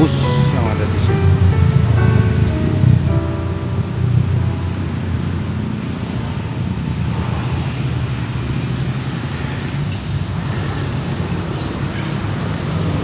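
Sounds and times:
cars and motorbikes passing: 0:00.0 - 0:13.0
road traffic rumble: 0:00.0 - 0:13.0.

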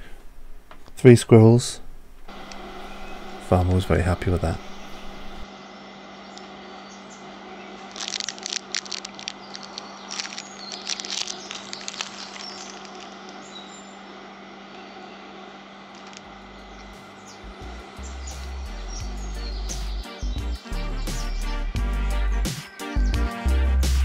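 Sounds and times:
low hum: 0:00.0 - 0:22.0
crackling rustles: 0:07.8 - 0:13.8, 0:15.9 - 0:17.1.

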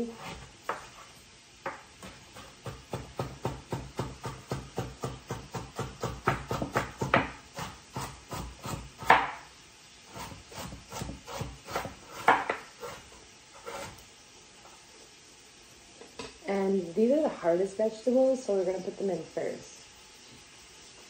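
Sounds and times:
knife chopping on cutting board: 0:00.1 - 0:01.0, 0:01.6 - 0:09.4, 0:10.1 - 0:14.0.

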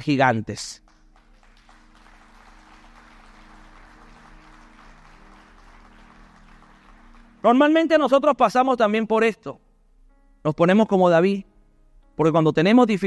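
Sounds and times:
soft music of held low notes: 0:00.0 - 0:13.0
faint applause: 0:00.9 - 0:07.4.

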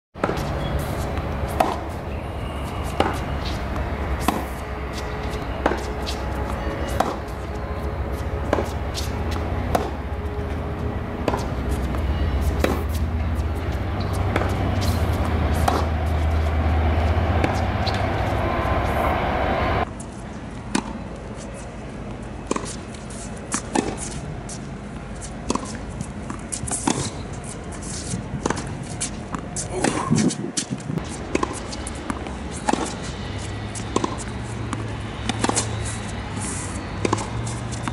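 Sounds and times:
tennis ball bouncing: 0:00.2 - 0:19.9, 0:20.7 - 0:21.1, 0:22.1 - 0:24.2, 0:25.2 - 0:27.2, 0:28.4 - 0:37.9
tennis racquets hitting ball: 0:00.2 - 0:19.9, 0:20.7 - 0:24.2, 0:25.2 - 0:37.9
low rumble: 0:00.8 - 0:19.9.

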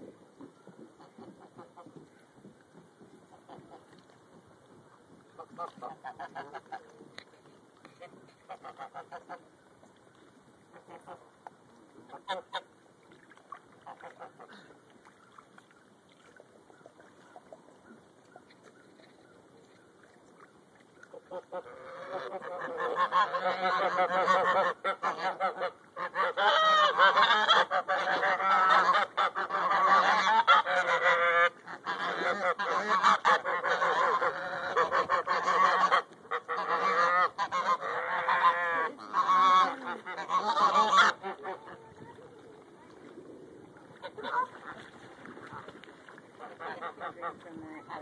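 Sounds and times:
geese honking: 0:21.1 - 0:41.8.

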